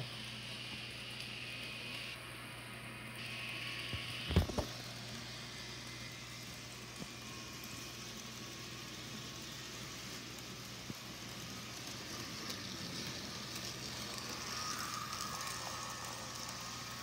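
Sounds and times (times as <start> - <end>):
toy train humming on track: 0.0 - 17.0.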